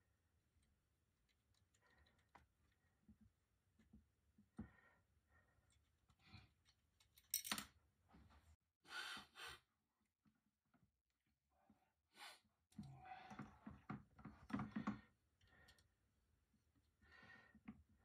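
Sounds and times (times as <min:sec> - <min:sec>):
small metal parts handling: 0:07.0 - 0:07.7.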